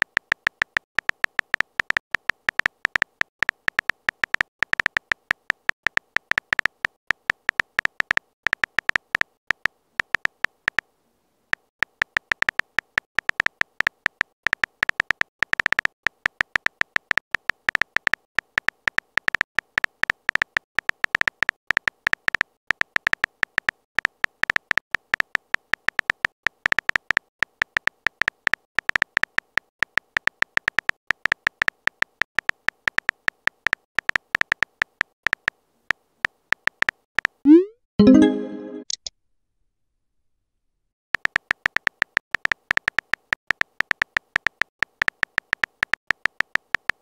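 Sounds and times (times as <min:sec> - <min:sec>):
keyboard beeping taps: 0:37.5 - 0:39.1.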